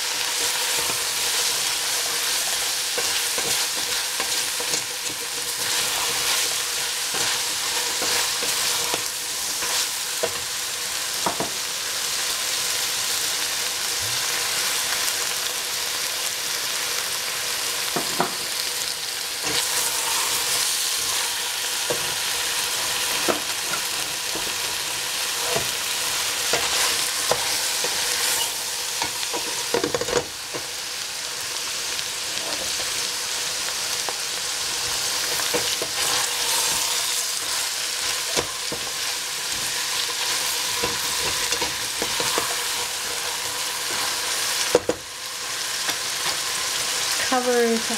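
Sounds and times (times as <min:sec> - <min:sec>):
green beans sizzling: 0:00.0 - 0:47.9
spatula scraping and knocking pot: 0:35.3 - 0:45.0.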